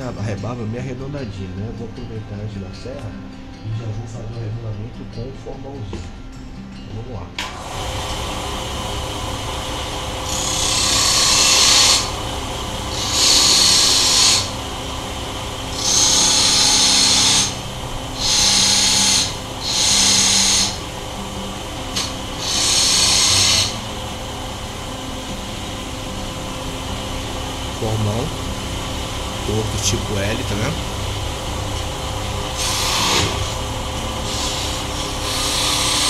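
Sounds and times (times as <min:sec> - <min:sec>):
chisel cutting spinning wood: 0:07.5 - 0:36.0
wood lathe humming: 0:07.5 - 0:36.0.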